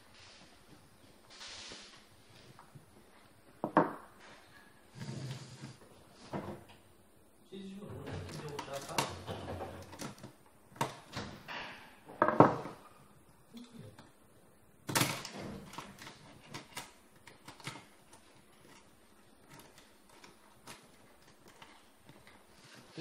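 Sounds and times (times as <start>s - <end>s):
metal and plastic parts clattering: 14.9s - 22.4s.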